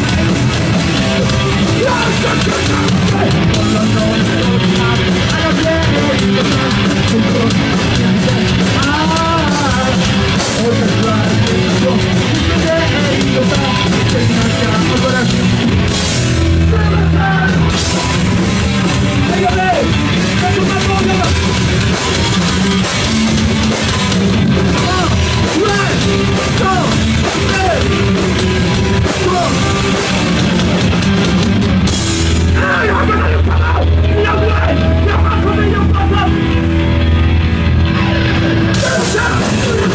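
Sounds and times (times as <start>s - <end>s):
bass guitar: 0.0s - 39.9s
distorted electric guitar: 0.0s - 39.9s
drum kit: 0.0s - 39.9s
person shouting into a microphone: 32.5s - 36.4s.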